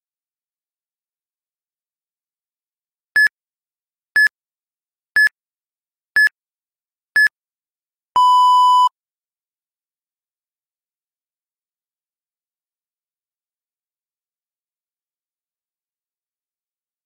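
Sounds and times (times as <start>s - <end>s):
long low timer beep: 8.2s - 8.9s.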